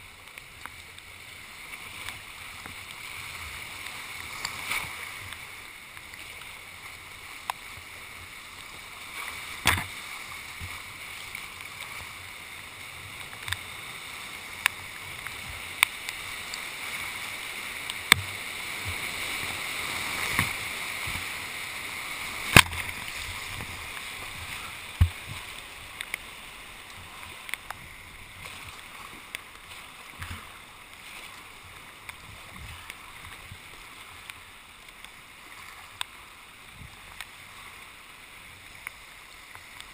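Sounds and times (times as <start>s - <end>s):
whitewater rapids rushing: 0.0s - 39.9s
kayak knocks and splashes: 9.6s - 10.0s, 22.4s - 25.5s.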